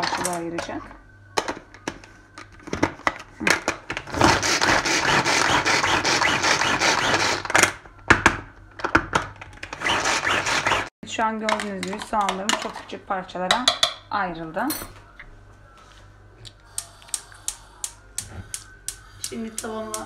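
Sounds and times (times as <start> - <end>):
pull-cord chopper mincing onion: 4.1 - 7.7, 9.7 - 10.9.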